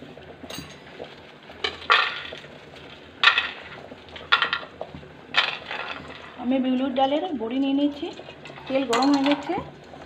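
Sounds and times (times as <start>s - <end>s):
kitchen utensils and dishes clinking: 0.5s - 0.8s, 8.0s - 9.7s.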